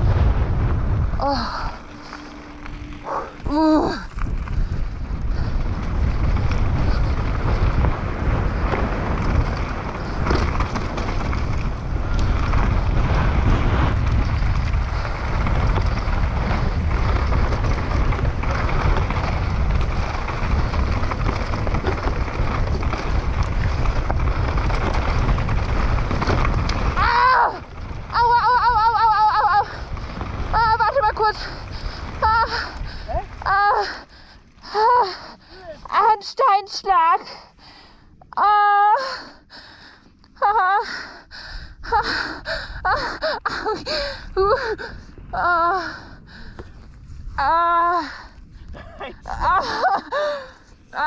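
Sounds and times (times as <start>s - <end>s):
bike tyres on gravel and stone: 0.0s - 51.0s
wind buffeting microphone: 0.0s - 51.0s
bike chain and frame clattering: 1.2s - 35.7s.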